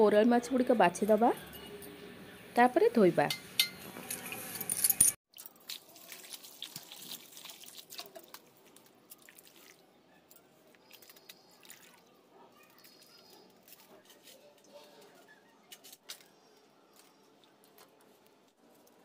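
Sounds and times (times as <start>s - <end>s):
water sloshing in a bowl: 5.3s - 9.9s, 10.9s - 12.1s.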